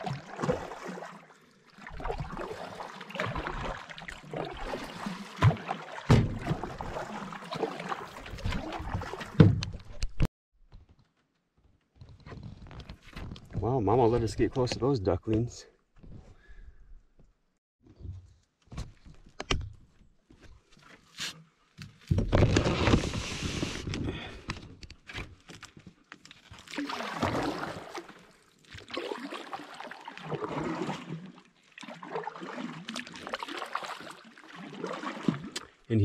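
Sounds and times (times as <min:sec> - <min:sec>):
paddle swishing water: 0:00.0 - 0:10.0, 0:22.5 - 0:23.9, 0:26.4 - 0:35.9.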